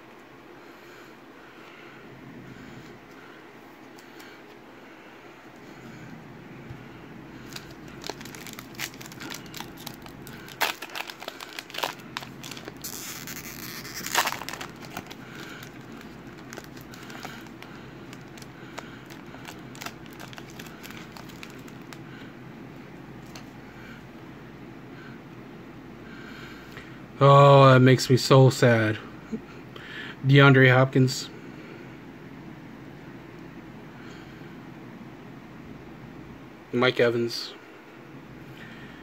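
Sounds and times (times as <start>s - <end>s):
foil pack crinkling: 7.4s - 22.0s.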